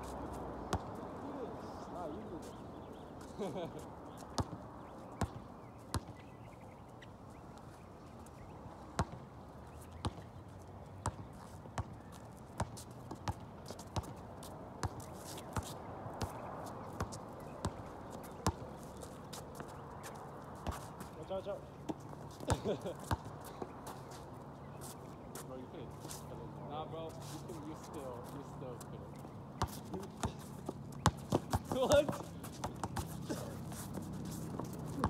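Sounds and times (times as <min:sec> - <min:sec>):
basketball bouncing on hard court: 0:05.2 - 0:06.2, 0:09.0 - 0:09.2, 0:11.0 - 0:11.2, 0:18.4 - 0:18.6, 0:29.6 - 0:33.5.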